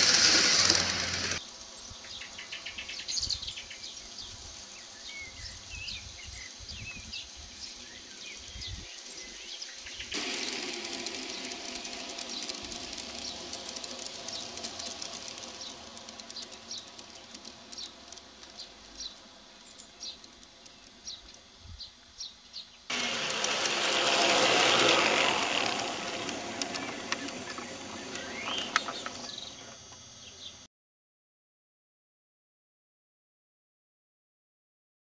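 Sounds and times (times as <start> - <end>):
train coaches rushing past: 0.0 - 1.4, 10.2 - 18.2, 22.9 - 29.7
model train wheels rumbling: 0.0 - 21.4, 22.9 - 30.5
birds chirping: 0.0 - 30.6.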